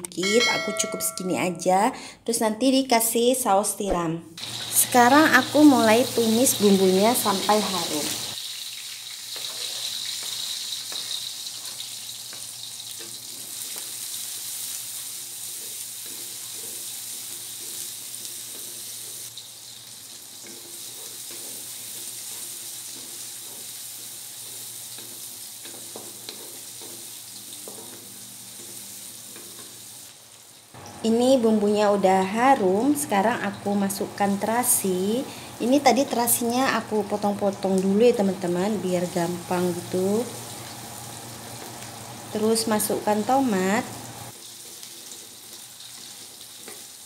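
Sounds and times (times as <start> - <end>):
vegetables sizzling in hot oil: 4.4 - 47.0
wooden spatula stirring: 15.4 - 19.2, 20.3 - 28.0.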